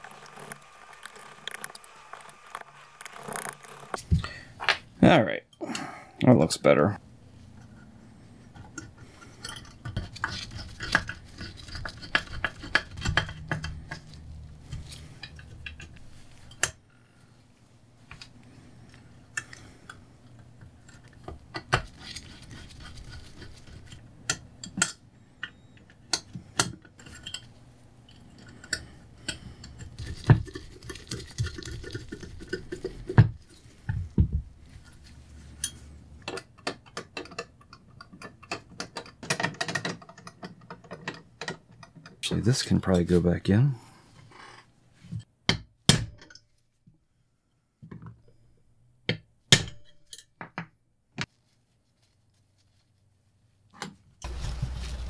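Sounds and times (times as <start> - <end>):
metal parts and screwdriver clinking: 8.6 - 16.8, 20.8 - 33.2, 34.8 - 42.2, 49.8 - 50.4.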